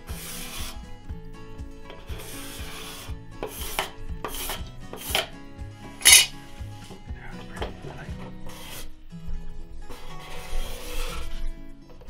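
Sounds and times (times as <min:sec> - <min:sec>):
card scraper rasping on wood: 0:00.0 - 0:00.9, 0:01.9 - 0:05.3, 0:09.9 - 0:11.4
soft background music with beat: 0:00.0 - 0:12.0.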